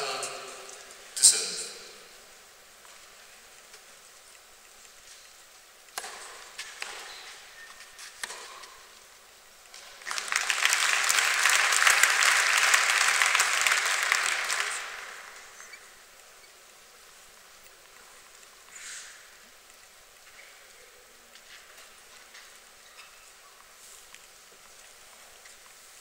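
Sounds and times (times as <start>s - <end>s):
tennis ball struck by rackets: 6.0s - 7.0s
audience applauding: 9.7s - 15.8s.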